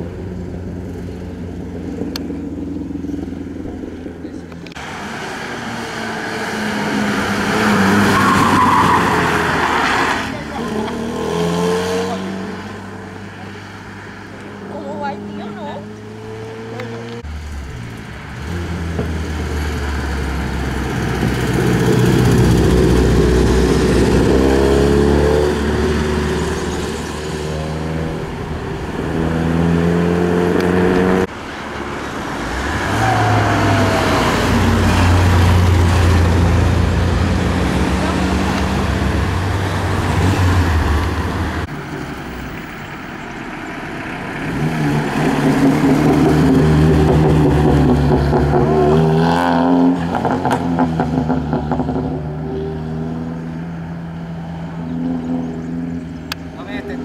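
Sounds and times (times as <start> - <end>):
rally car engines accelerating: 32.1 - 57.0.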